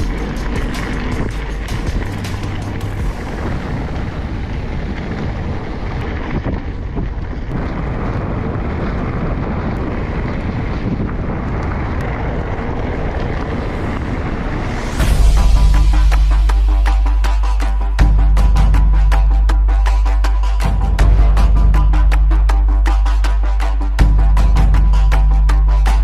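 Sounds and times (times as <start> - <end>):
mountain bike rattling on dirt: 0.0 - 15.0
wind buffeting microphone: 0.0 - 26.0.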